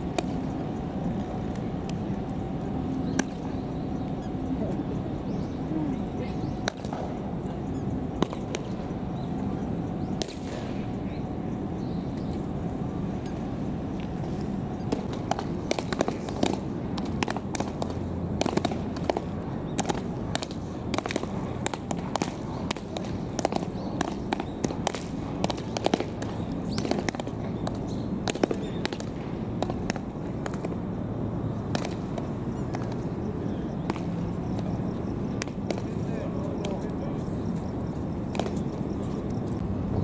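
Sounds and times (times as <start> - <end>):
baseballs smacking into gloves: 0.1 - 0.4, 10.2 - 10.8, 14.9 - 30.8, 31.7 - 33.0, 33.8 - 34.7, 35.4 - 36.0, 38.3 - 38.6.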